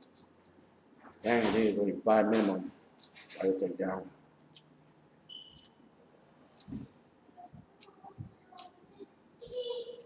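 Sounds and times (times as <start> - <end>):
mouth clicks while eating: 3.0 - 3.2, 4.5 - 4.7, 5.3 - 5.8, 6.5 - 9.6.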